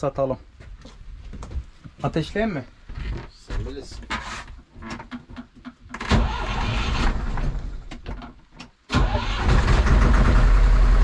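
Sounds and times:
boat engine starting and running: 9.0 - 11.0.

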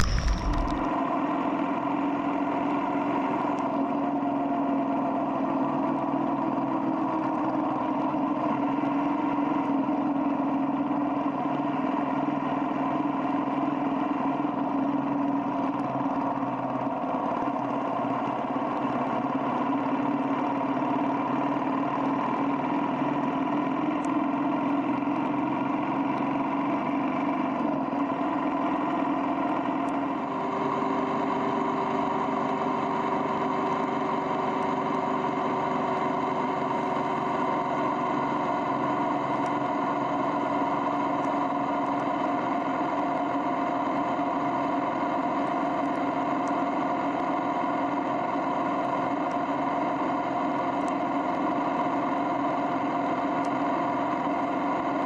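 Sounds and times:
motorcycle engine cruising: 0.0 - 0.9
wind and road noise: 0.0 - 0.9.

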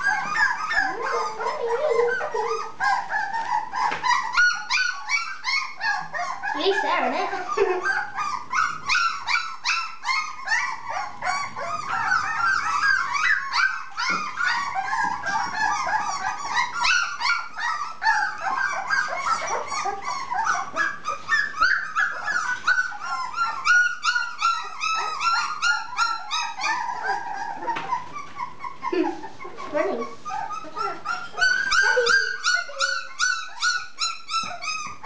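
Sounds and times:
puppies whining and yelping: 0.0 - 35.0.

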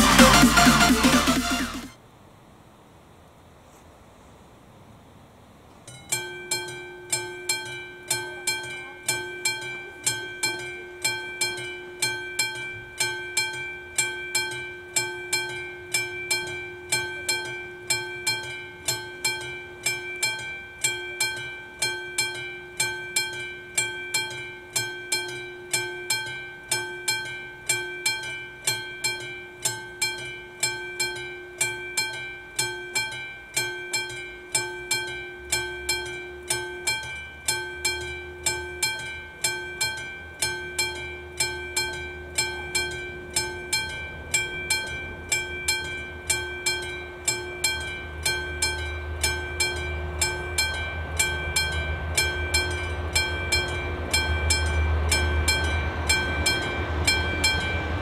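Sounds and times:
level crossing warning bell ringing: 6.1 - 58.0.

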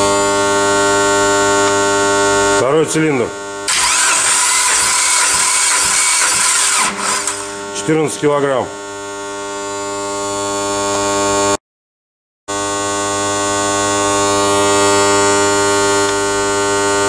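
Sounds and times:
starter motor cranking engine: 3.7 - 7.8.

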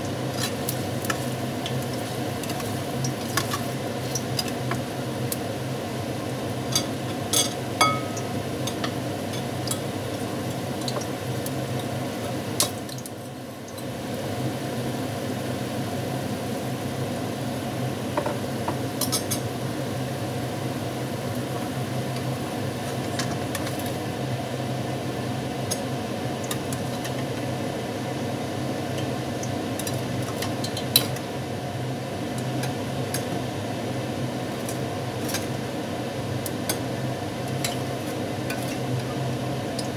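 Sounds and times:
chicken sizzling in a pan: 0.0 - 39.9
metal spatula tapping a pan: 6.8 - 9.5.

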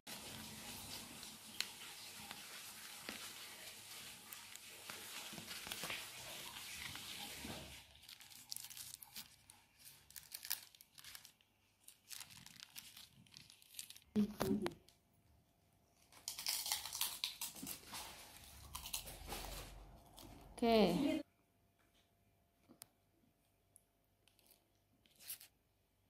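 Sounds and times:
paper wrapping rustling: 0.1 - 14.8, 16.1 - 20.5, 24.2 - 25.6
plastic bag crinkling: 0.2 - 14.9, 16.1 - 20.5, 24.3 - 25.5.

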